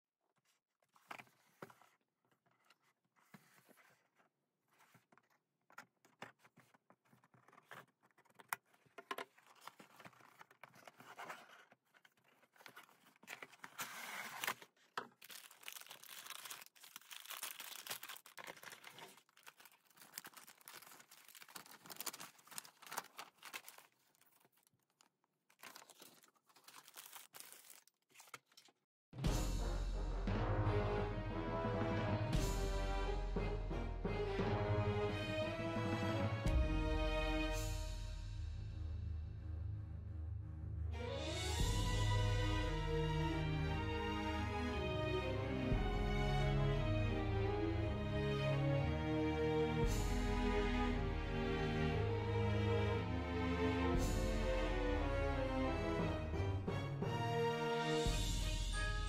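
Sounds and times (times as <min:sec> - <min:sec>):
cardboard box handling: 0:00.8 - 0:24.6
plastic bags crinkling: 0:11.6 - 0:28.7.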